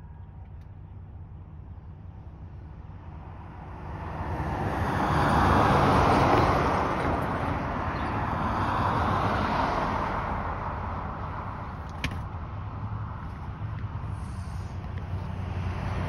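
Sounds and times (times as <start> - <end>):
quieter vehicle passing: 1.6 - 11.8, 12.4 - 16.0
car passing: 2.2 - 16.0.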